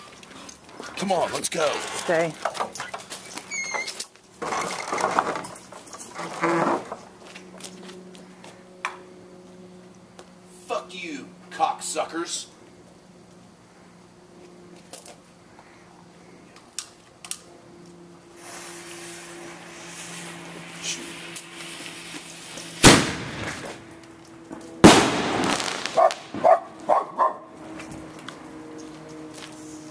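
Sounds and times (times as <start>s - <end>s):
firework fuse hissing: 18.2s - 23.9s, 24.8s - 26.5s
rushing crackling hiss: 18.2s - 26.5s
firework bangs: 18.4s - 23.9s, 24.8s - 26.9s
dog barking: 26.0s - 27.5s.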